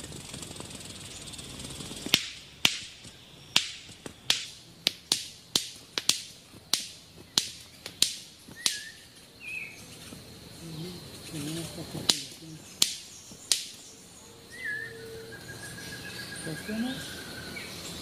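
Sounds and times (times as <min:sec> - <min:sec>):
bird wing snaps: 0:00.0 - 0:09.2, 0:11.3 - 0:13.9
short bird chirps: 0:08.5 - 0:10.1.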